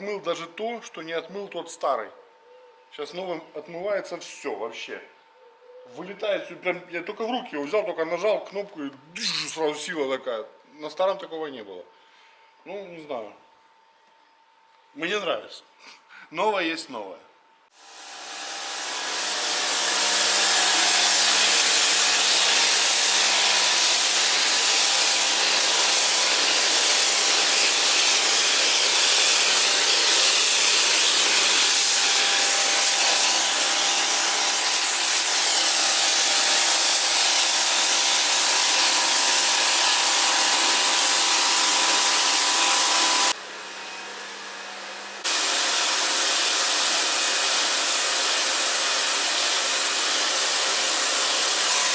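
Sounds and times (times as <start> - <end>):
pressure washer motor hum: 17.8 - 51.9
pressure washer water jet hiss: 18.1 - 43.4, 45.2 - 51.9.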